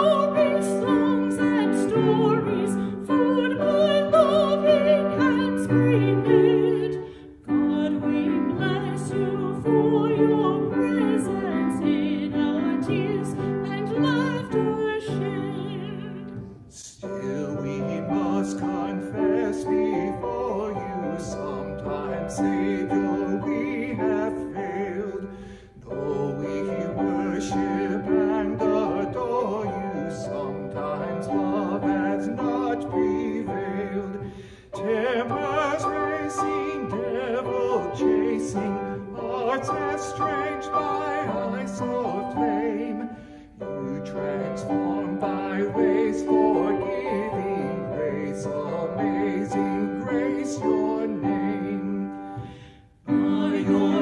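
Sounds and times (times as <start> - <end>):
grand piano accompaniment: 0.0 - 54.0
man and woman singing a hymn: 0.0 - 54.0
singer breathing: 25.2 - 25.8, 34.2 - 34.8, 43.1 - 43.6, 52.2 - 53.0.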